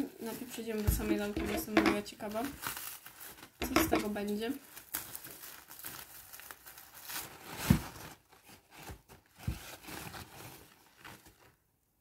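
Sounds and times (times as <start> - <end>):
plastic bag crinkling: 0.0 - 11.6
scissors cutting plastic: 3.6 - 5.1.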